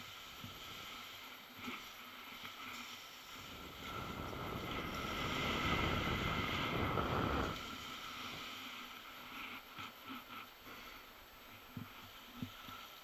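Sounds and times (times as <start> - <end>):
skis hissing over snow: 0.0 - 13.0
wind on microphone: 3.4 - 8.4.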